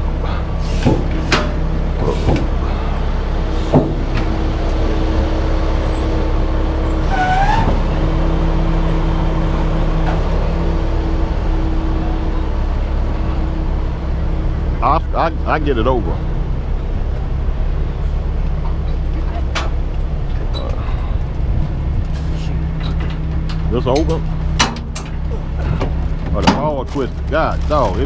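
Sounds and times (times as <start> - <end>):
truck engine running: 0.0 - 28.0
metal clanks: 22.7 - 27.0.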